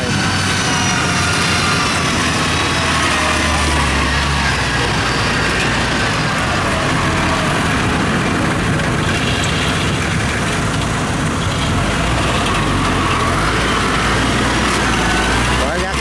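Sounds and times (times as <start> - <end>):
diesel engines running: 0.0 - 16.0.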